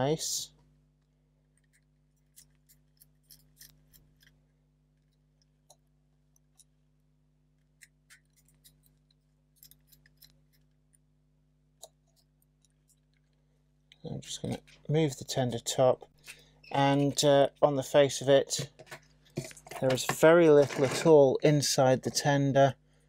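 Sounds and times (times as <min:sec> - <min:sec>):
low steady hum: 0:00.0 - 0:23.0
model being handled: 0:18.5 - 0:21.2.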